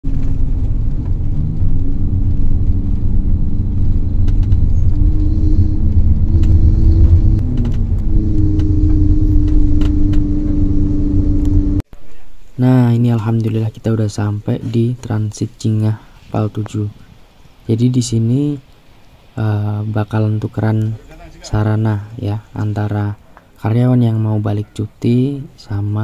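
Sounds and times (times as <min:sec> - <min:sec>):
car engine and road rumble: 0:00.0 - 0:15.6.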